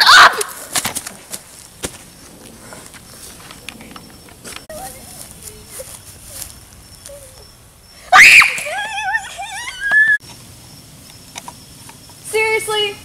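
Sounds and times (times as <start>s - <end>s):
loud scream: 0.0s - 0.6s, 8.1s - 10.2s.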